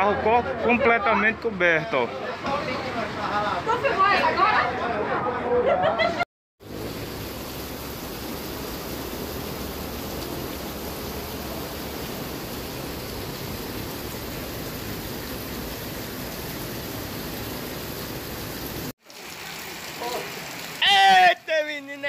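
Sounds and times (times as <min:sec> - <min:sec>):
heavy rain on rushing floodwater: 0:06.6 - 0:22.0.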